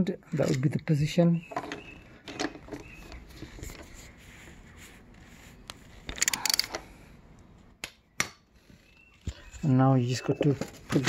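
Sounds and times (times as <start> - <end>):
ratchet spanner clicking: 6.1 - 6.8.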